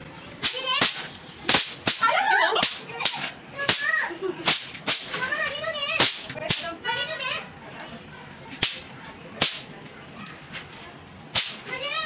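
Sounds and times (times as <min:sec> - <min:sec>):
snap pops cracking on concrete: 0:08.6 - 0:09.7.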